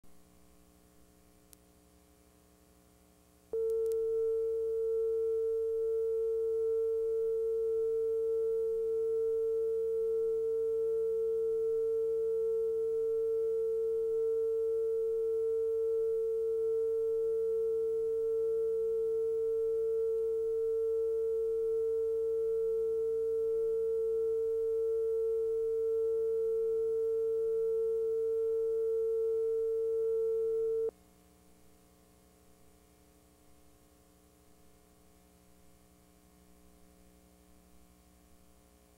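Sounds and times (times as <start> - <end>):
pure mid-pitched test tone: 3.5 - 30.9.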